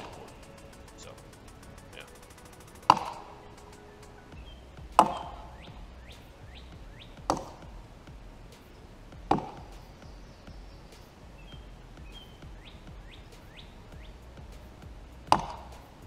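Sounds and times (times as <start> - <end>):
axe chopping tree trunk: 4.9 - 5.5, 7.2 - 7.8, 9.2 - 10.0, 15.3 - 15.8.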